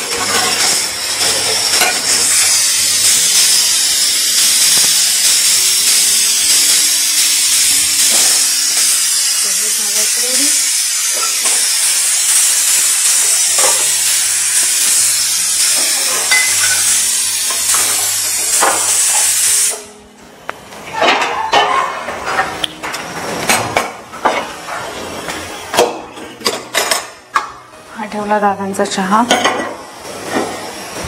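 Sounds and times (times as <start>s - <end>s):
steam hissing from pressure cooker: 0.0s - 20.0s, 28.3s - 31.0s
steel pots and utensils clinking: 0.0s - 20.0s, 20.9s - 31.0s.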